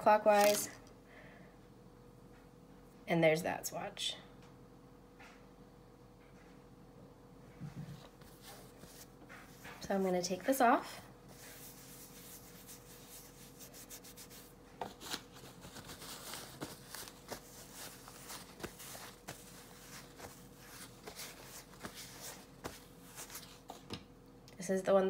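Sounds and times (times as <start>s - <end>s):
wipe rubbing on skin: 11.3s - 23.7s.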